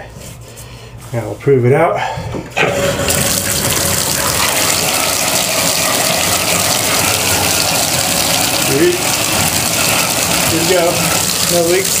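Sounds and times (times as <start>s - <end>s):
tap water gushing into tub: 2.6s - 12.0s.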